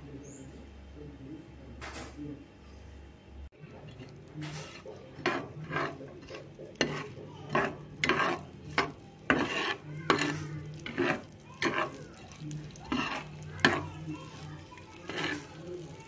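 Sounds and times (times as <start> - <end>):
metal spatula scraping pan: 3.8 - 16.0
vegetables sizzling in oil: 3.9 - 16.0.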